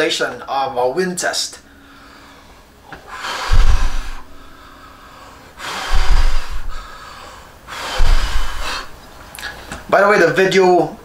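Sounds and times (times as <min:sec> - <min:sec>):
breath blown into microphone: 0:02.0 - 0:08.9.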